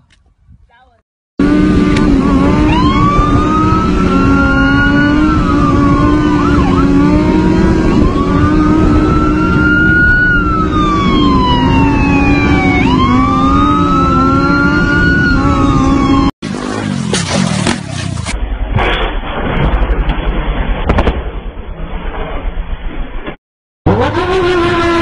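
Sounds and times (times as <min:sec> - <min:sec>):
motorcycle engine drone: 0:01.4 - 0:23.0, 0:23.9 - 0:25.0
police siren wailing: 0:02.2 - 0:16.3.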